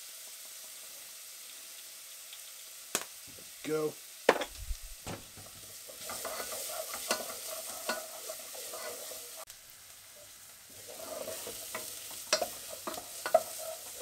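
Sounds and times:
onions sizzling in oil: 0.0s - 14.0s
wooden spoon scraping a pan: 4.4s - 9.5s, 10.7s - 14.0s.

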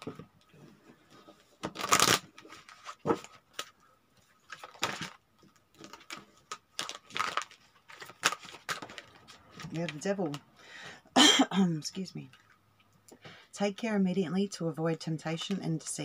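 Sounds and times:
cards being riffle-shuffled: 1.2s - 3.7s, 5.8s - 10.4s.

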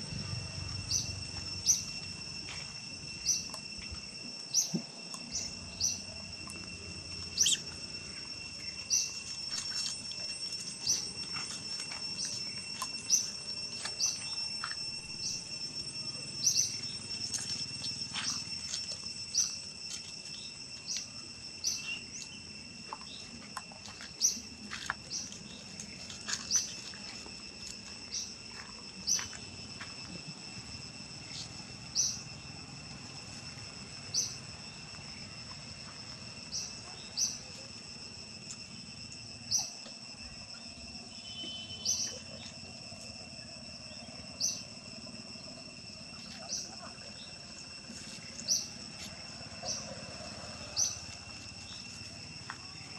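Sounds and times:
high insect drone: 0.0s - 52.9s
sharp high chirps: 0.3s - 29.8s.

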